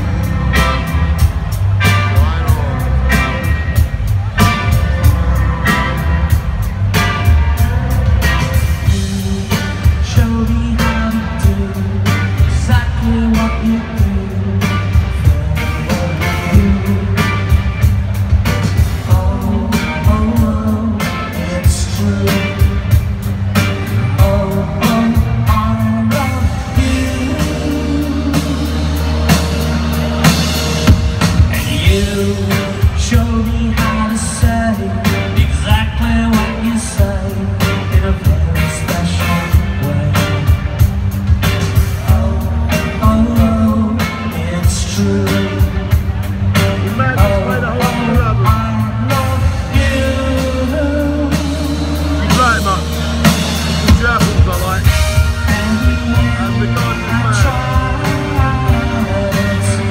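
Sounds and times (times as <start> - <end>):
live rock band playing: 0.0 - 59.9
lead singing: 46.7 - 59.9.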